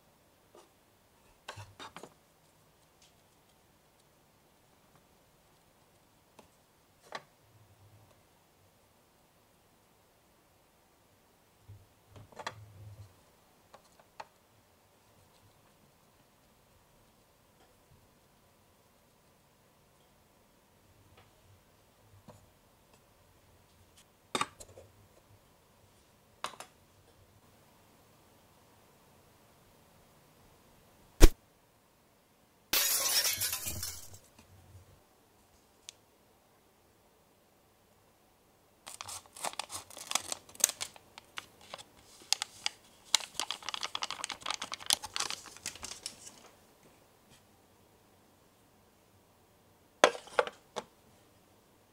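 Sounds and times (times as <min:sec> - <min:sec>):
powder sachet crinkling: 0:38.9 - 0:46.5.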